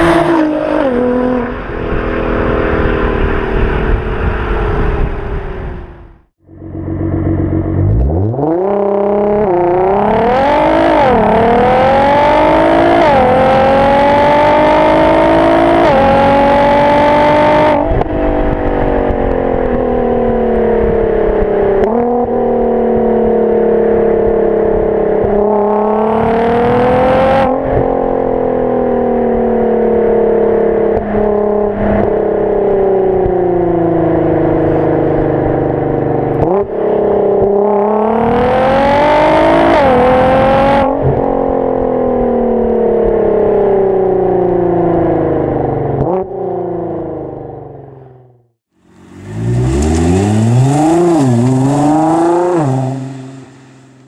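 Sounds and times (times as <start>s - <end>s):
car engine revving hard: 7.6s - 18.5s, 21.8s - 29.5s, 36.4s - 41.5s, 48.8s - 53.8s.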